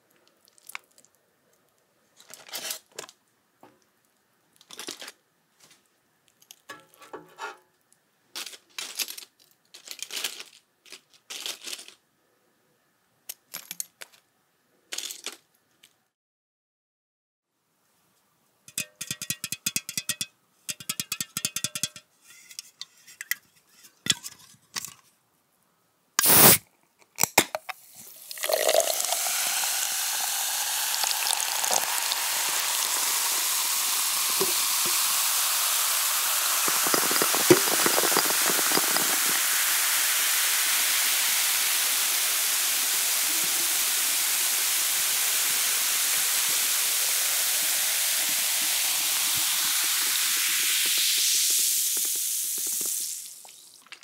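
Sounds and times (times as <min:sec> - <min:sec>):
clicks and taps: 0:18.7 - 0:22.1
food sizzling in hot oil: 0:26.2 - 0:26.6, 0:27.8 - 0:54.0.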